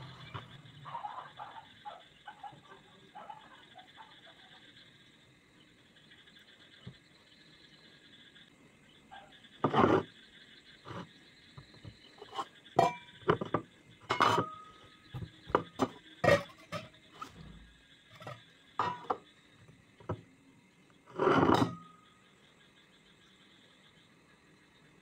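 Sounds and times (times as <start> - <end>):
dish handling noise: 12.2 - 19.2, 21.1 - 21.9
glass and plate clinking: 12.3 - 14.8, 15.5 - 16.9, 18.2 - 19.2, 21.2 - 21.9.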